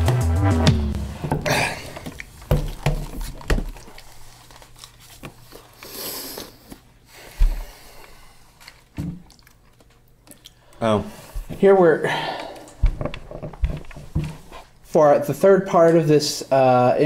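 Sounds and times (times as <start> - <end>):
dull thump: 0.9 - 1.8, 2.5 - 3.7.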